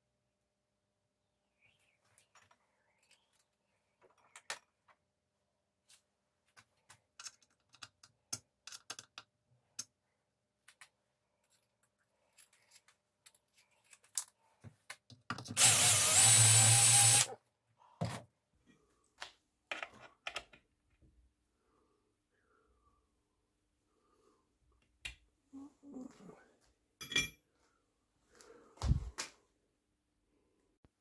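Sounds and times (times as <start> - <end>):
small tools clicking and tapping: 6.6 - 10.0
small electric power tool running: 15.6 - 17.4.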